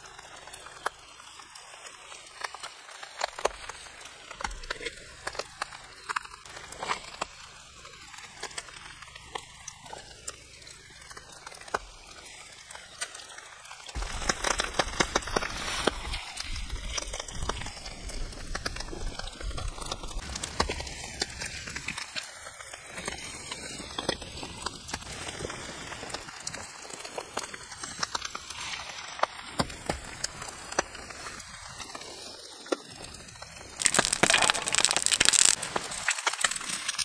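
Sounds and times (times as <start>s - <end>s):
campfire crackling: 33.8s - 35.8s.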